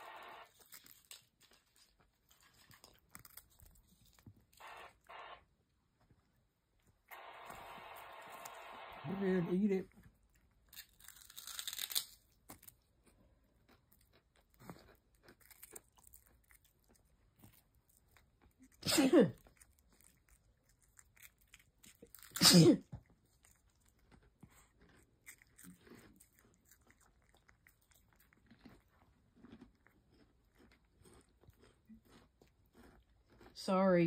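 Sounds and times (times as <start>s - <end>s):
cat crunching and chewing: 0.0s - 34.0s
person sneezing loudly: 18.8s - 19.4s, 22.4s - 22.9s.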